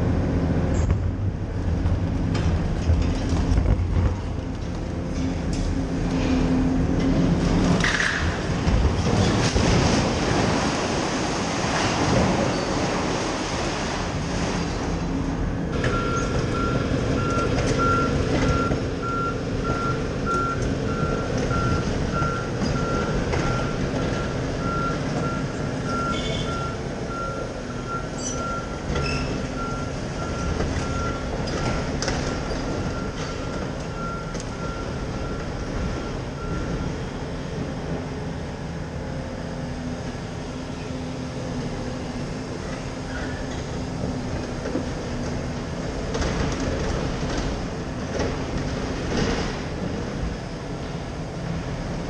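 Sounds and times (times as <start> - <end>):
excavator engine running: 0.0 - 52.0
excavator alarm beeping: 15.8 - 31.6, 32.2 - 37.1.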